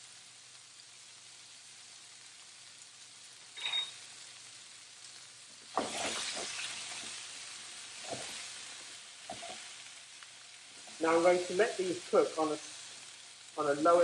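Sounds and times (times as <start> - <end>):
potatoes sizzling in oil: 0.0 - 14.0
spatula knocking pan: 5.7 - 6.6
spatula scraping pan: 5.7 - 7.2, 8.0 - 8.6, 9.2 - 9.8.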